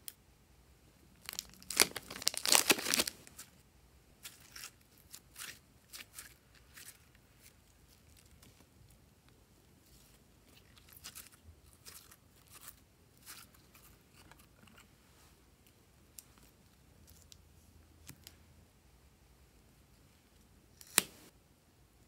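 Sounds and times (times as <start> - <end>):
slime crackling and squishing: 1.2 - 3.4.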